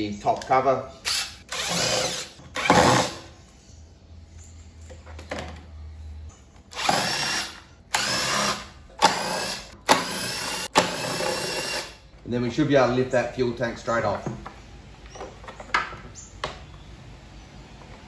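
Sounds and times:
cordless drill motor whine: 0:01.0 - 0:03.1, 0:06.7 - 0:12.0.

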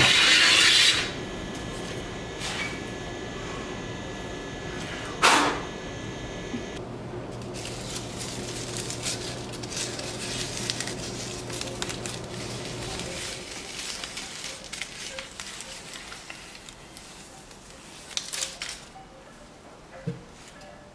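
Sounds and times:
steady low hum: 0:00.0 - 0:14.1
wood shaving rustling and crackling: 0:07.3 - 0:18.8.

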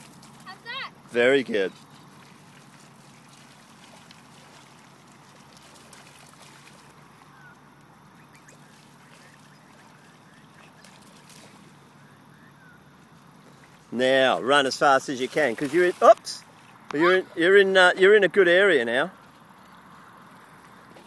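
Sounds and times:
steady outdoor hiss: 0:00.0 - 0:21.0
short bird calls: 0:07.1 - 0:13.7.

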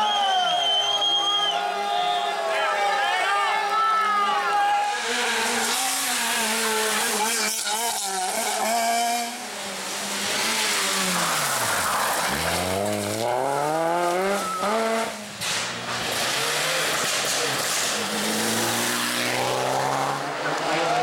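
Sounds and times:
rally car engines revving: 0:04.0 - 0:21.0.

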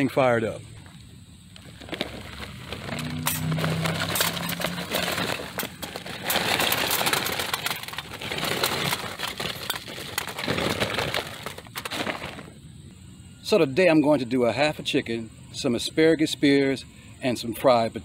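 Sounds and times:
charcoal rattling into metal: 0:01.6 - 0:12.5.

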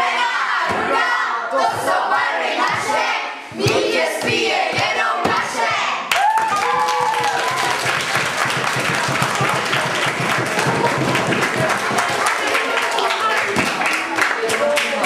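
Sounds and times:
children clapping: 0:06.1 - 0:15.0
children talking and laughing: 0:12.0 - 0:15.0.

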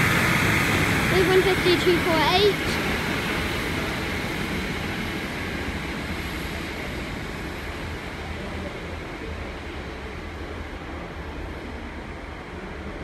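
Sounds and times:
train wheel noise: 0:00.0 - 0:08.0
diesel train engine: 0:00.0 - 0:13.0.

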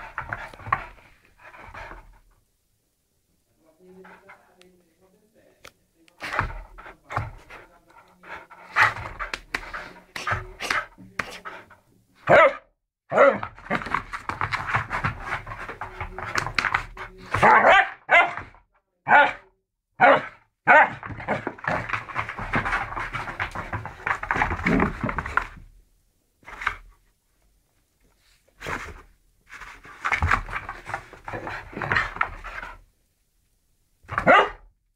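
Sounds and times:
dog panting: 0:06.3 - 0:11.8
dog barking: 0:12.3 - 0:13.5, 0:17.4 - 0:18.5, 0:19.1 - 0:21.0, 0:34.2 - 0:34.7.

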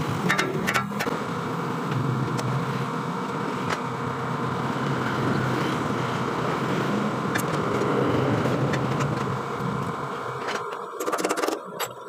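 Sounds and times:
mechanical hum: 0:00.0 - 0:12.0.

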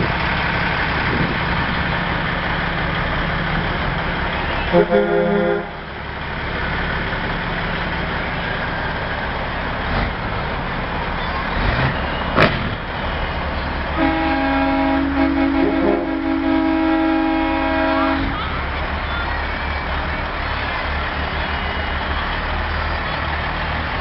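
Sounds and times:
heavy truck engines rumbling: 0:00.0 - 0:24.0
truck air horn two-note blast: 0:04.6 - 0:05.9, 0:14.0 - 0:18.4.

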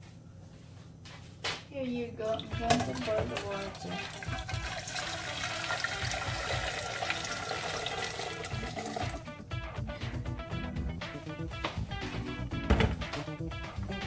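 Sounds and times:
background music: 0:02.2 - 0:14.0
water pouring into metal pot: 0:02.4 - 0:09.2.

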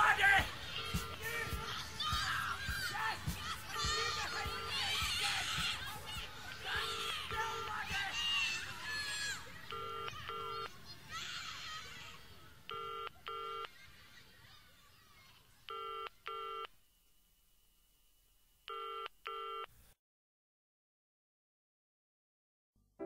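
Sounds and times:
telephone ringing: 0:09.7 - 0:10.7, 0:12.7 - 0:13.7, 0:18.7 - 0:19.7.

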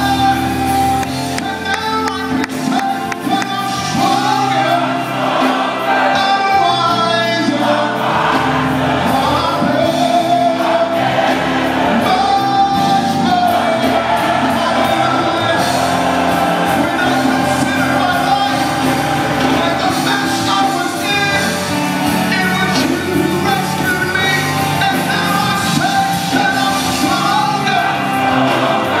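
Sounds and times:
man singing into microphone: 0:00.0 - 0:05.1, 0:11.9 - 0:15.9, 0:16.6 - 0:29.0
band playing: 0:00.0 - 0:29.0
choir singing: 0:00.0 - 0:29.0.

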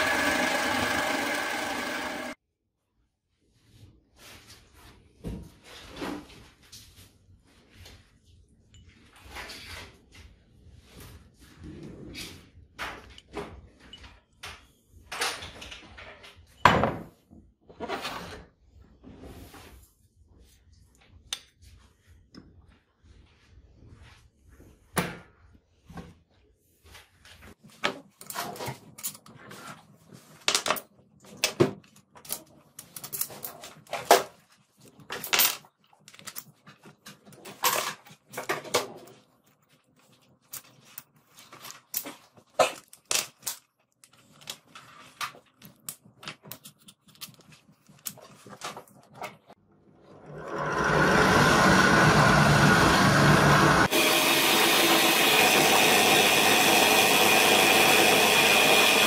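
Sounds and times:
power drill boring: 0:00.0 - 0:02.4, 0:50.2 - 0:59.0.

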